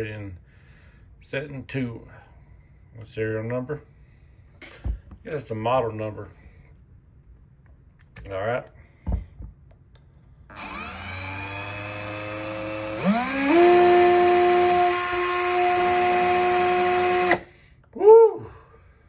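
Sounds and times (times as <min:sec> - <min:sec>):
cordless screwdriver motor whine: 0:10.5 - 0:17.4.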